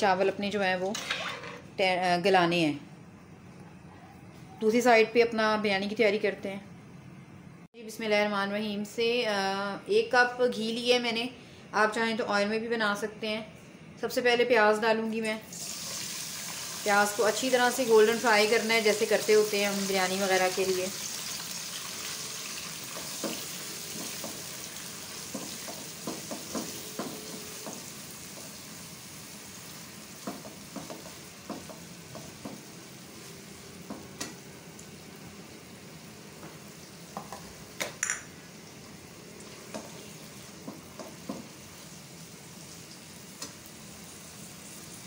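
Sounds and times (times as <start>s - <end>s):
onions sizzling in oil: 15.5s - 37.8s, 38.4s - 45.0s.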